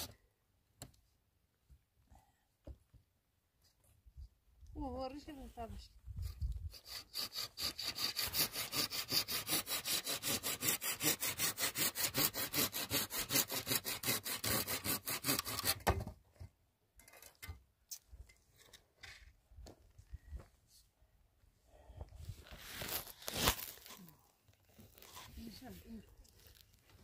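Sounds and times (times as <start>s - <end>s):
hand saw cutting wood: 6.6s - 16.0s, 22.8s - 24.0s.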